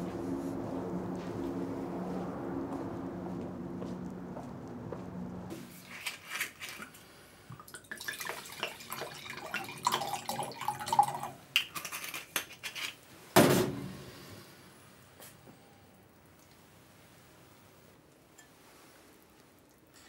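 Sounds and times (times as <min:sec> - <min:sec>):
wine glugging into glass: 0:07.6 - 0:11.3.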